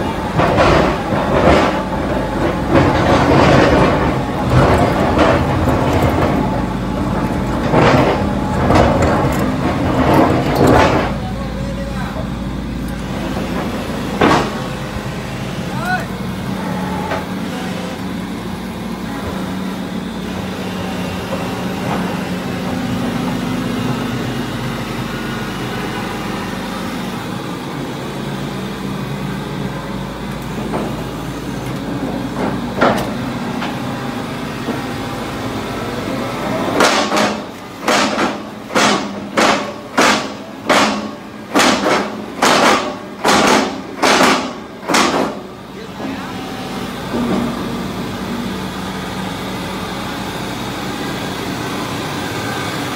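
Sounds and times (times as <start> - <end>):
loud metal clanks: 0.0 - 11.7, 12.9 - 15.0, 36.7 - 45.5
drilling rig engine running: 0.0 - 52.9.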